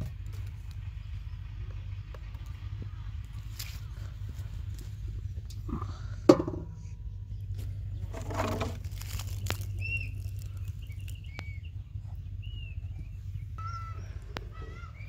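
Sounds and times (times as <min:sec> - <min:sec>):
small birds chirping: 0:00.0 - 0:15.0
steady low rumble: 0:00.0 - 0:15.0
knock on metal pot: 0:06.3 - 0:06.7
handling rustle: 0:07.6 - 0:11.2.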